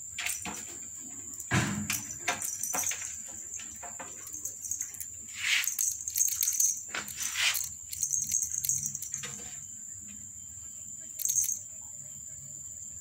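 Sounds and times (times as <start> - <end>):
toy beads jingling and clicking: 0.2 - 0.7, 1.3 - 9.5, 11.2 - 11.6
high-pitched insect drone: 4.2 - 13.0.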